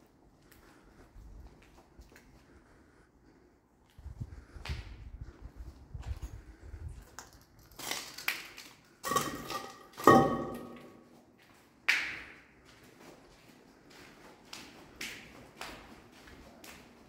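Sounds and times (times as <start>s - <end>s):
footsteps crunching on broken glass: 7.6s - 11.1s.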